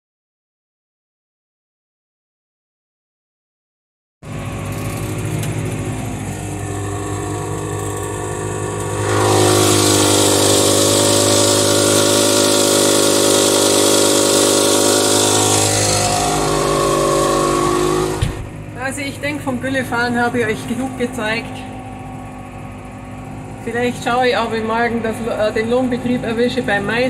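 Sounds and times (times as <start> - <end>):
tractor engine running: 4.2 - 27.0
rushing hiss: 7.4 - 18.5.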